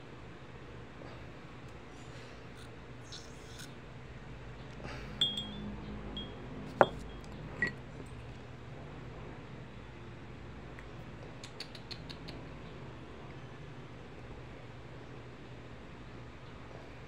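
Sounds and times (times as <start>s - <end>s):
glass vial clinking: 5.2s - 8.2s.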